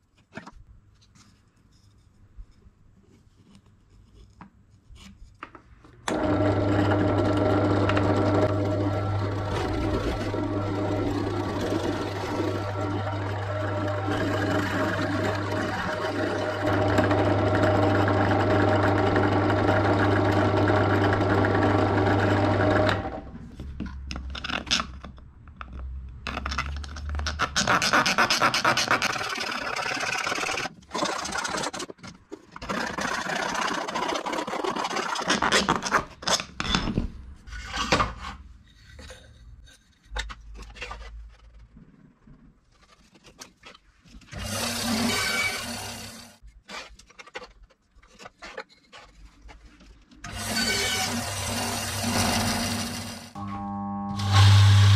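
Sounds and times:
woodworking machine humming: 0:06.1 - 0:23.3, 0:44.3 - 0:46.4, 0:50.3 - 0:54.9.

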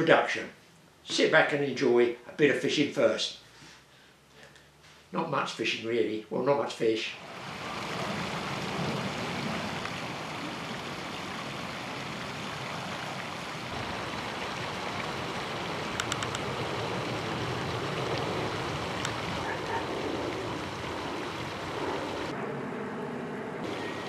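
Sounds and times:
water rushing: 0:06.8 - 0:22.4, 0:23.6 - 0:24.0
sharp little ticks: 0:15.9 - 0:16.5.

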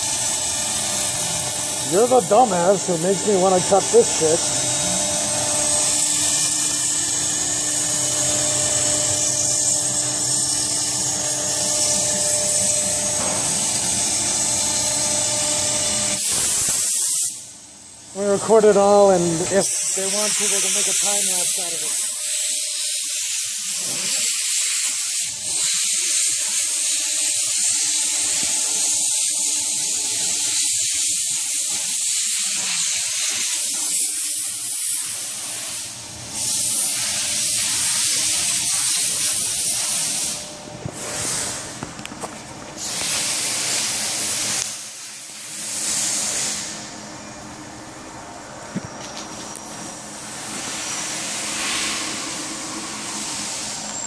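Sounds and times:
router bit cutting foam: 0:00.3 - 0:17.3.

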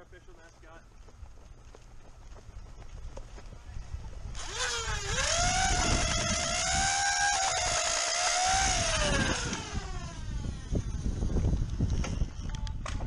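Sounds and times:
toy blaster motor whine: 0:04.3 - 0:12.6.

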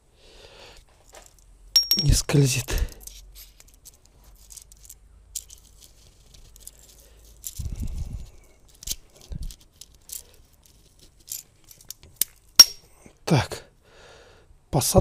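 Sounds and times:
light metallic clicks and clinks: 0:01.0 - 0:12.9.

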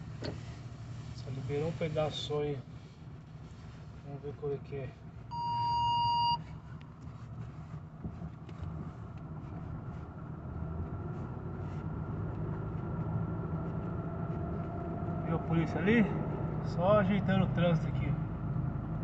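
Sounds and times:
road noise: 0:00.0 - 0:19.0
vehicle engine running: 0:00.0 - 0:19.0
electronic beep: 0:05.3 - 0:06.4.

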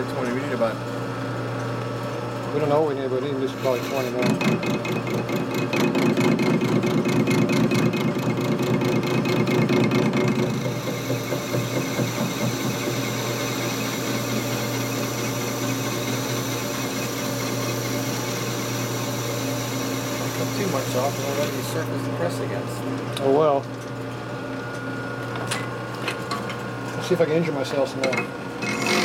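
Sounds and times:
metal lathe cutting steel: 0:03.5 - 0:04.5, 0:10.4 - 0:21.9.

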